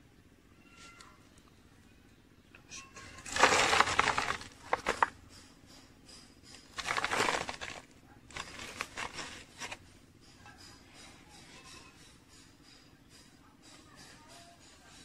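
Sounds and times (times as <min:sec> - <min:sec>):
soil crunching in plastic bottle: 0:03.2 - 0:05.2, 0:06.6 - 0:09.8.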